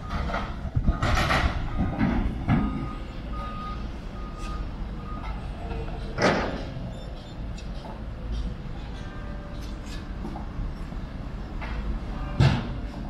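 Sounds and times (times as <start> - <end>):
reversing alarm beeps: 0.0 - 5.8
diesel machinery rumble: 0.0 - 13.0.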